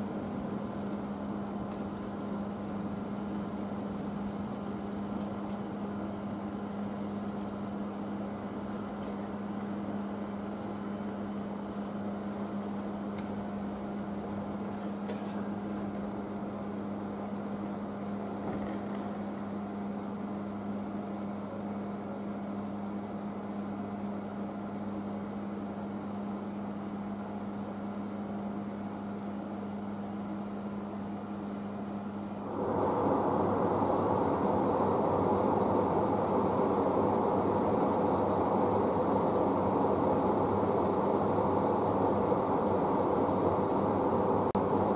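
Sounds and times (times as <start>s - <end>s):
electric locomotive humming: 28.6s - 44.9s.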